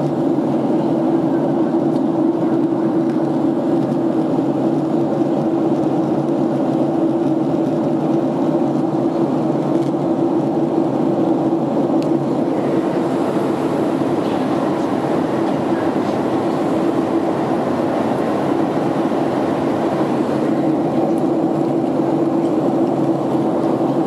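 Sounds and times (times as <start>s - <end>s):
jet engines roaring: 0.0s - 24.0s
low drone: 6.6s - 24.0s
rushing air: 10.2s - 24.0s.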